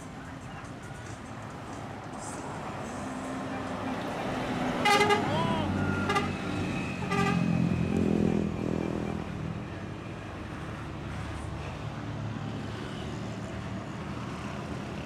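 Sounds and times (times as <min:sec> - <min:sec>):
cars passing: 0:00.0 - 0:15.0
motorcycle: 0:04.7 - 0:15.0.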